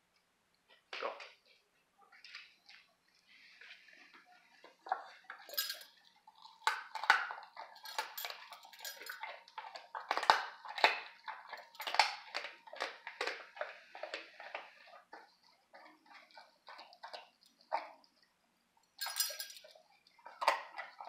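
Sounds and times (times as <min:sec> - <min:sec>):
bones clacking in a metal bowl: 0:04.8 - 0:18.2, 0:18.9 - 0:21.0.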